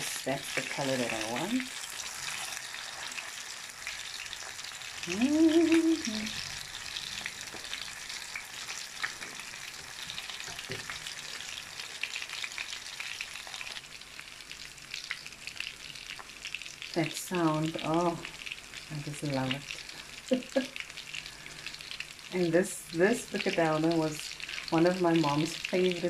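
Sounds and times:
fish cakes sizzling in oil: 0:00.0 - 0:26.0
person humming: 0:05.0 - 0:06.5.

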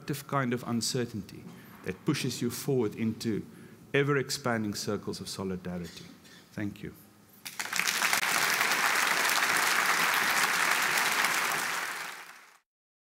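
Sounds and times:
audience applauding: 0:07.4 - 0:12.6.

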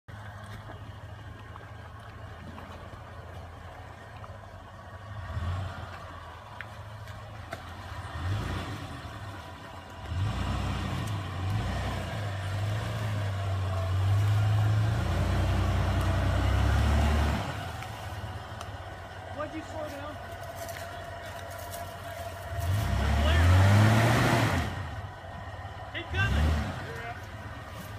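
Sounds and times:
engine revving under load: 0:05.1 - 0:06.4, 0:07.8 - 0:19.7, 0:22.4 - 0:27.9.

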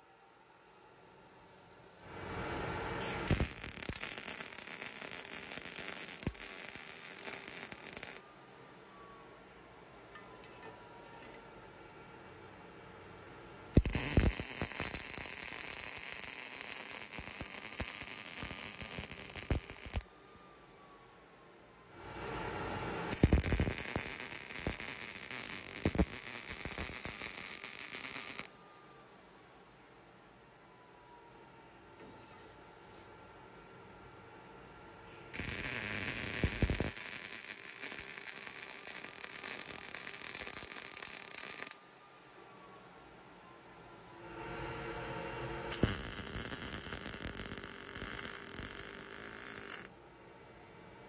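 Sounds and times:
welding arc crackling: 0:03.0 - 0:08.2, 0:13.8 - 0:20.0, 0:23.1 - 0:28.5, 0:35.1 - 0:41.8, 0:45.7 - 0:49.9.

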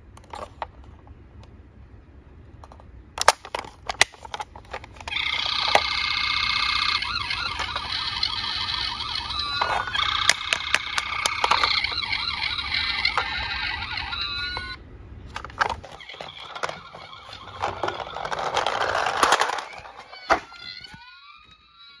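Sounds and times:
plastic toy clicks: 0:03.2 - 0:14.7, 0:15.3 - 0:21.0
toy rolling down wooden ramp: 0:04.7 - 0:22.0
toy electronic siren: 0:05.1 - 0:14.8, 0:15.4 - 0:22.0.

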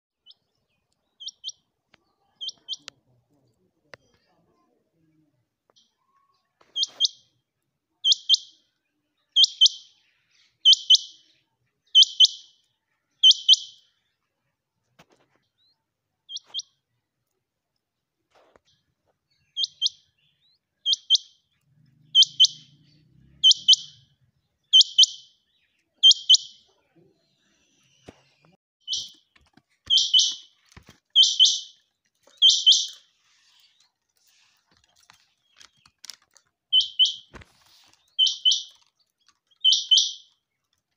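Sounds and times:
quail calling: 0:12.0 - 0:12.5, 0:22.0 - 0:22.8, 0:23.4 - 0:24.0, 0:24.7 - 0:25.3, 0:26.0 - 0:26.6, 0:29.9 - 0:30.5, 0:31.1 - 0:31.8, 0:32.4 - 0:33.1, 0:36.7 - 0:38.8, 0:39.6 - 0:40.4.

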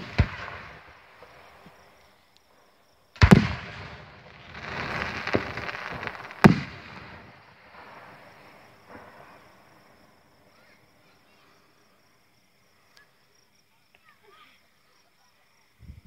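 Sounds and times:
firework shells bursting: 0:00.0 - 0:01.9, 0:03.2 - 0:10.0
firework hissing: 0:03.2 - 0:10.8.

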